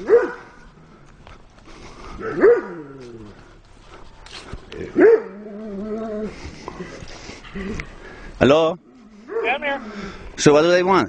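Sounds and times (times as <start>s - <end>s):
dog barking: 0.0s - 0.5s, 2.2s - 2.8s, 5.0s - 5.4s, 9.3s - 9.6s.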